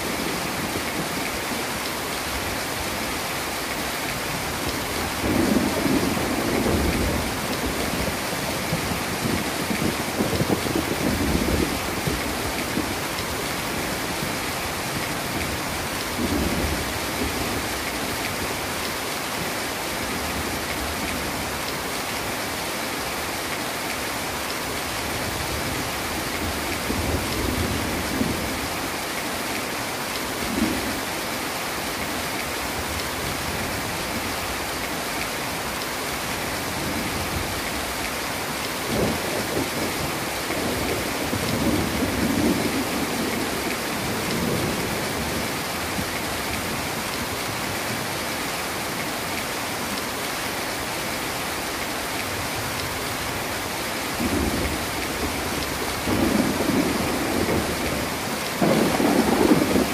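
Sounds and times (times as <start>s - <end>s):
heavy rain pouring: 0.0s - 59.9s
thunder rumbling: 54.2s - 59.9s.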